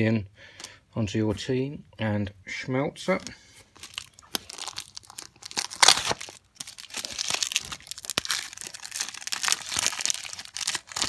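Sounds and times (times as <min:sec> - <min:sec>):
wrapper crinkling: 0:03.7 - 0:11.0
foil pack tearing: 0:03.8 - 0:11.0.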